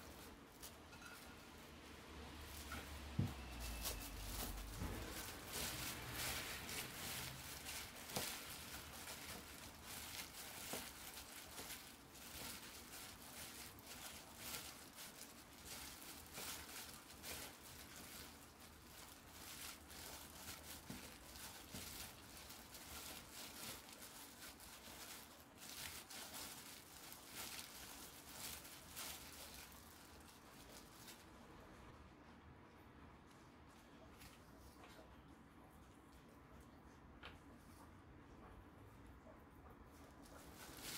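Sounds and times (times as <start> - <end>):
gloved hand squishing food: 2.3 - 31.7, 39.9 - 40.9.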